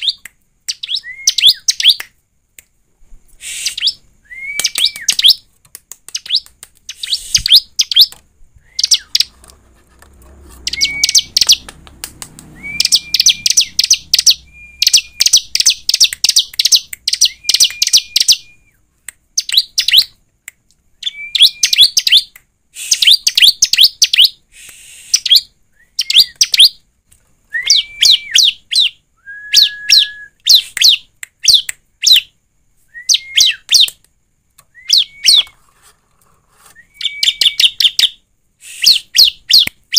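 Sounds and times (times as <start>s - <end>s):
bird singing sharp high notes: 10.6s - 11.7s, 12.5s - 18.6s.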